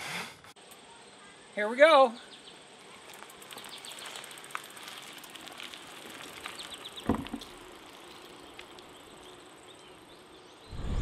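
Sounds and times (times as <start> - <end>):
dull thump: 7.0 - 7.5.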